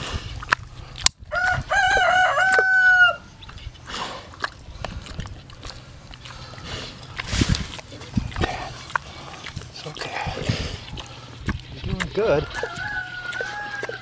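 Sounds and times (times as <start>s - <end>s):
rooster crowing: 1.3s - 3.3s, 12.3s - 14.0s.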